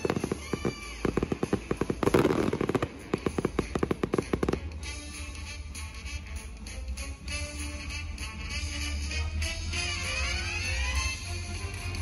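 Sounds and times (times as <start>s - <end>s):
fireworks bangs and crackles: 0.0s - 6.2s.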